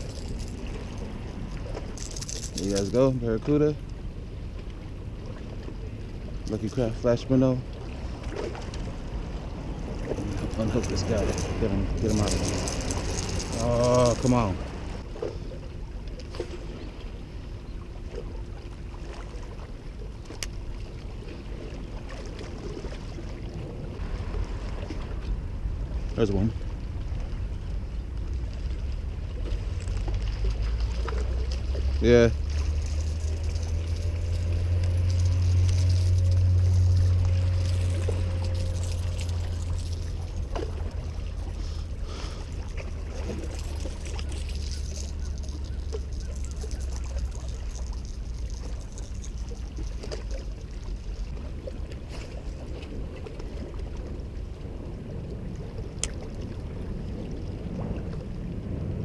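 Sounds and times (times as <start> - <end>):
water splashing: 0.0 - 59.0
low steady drone: 3.8 - 57.0
wind buffeting microphone: 47.5 - 59.0.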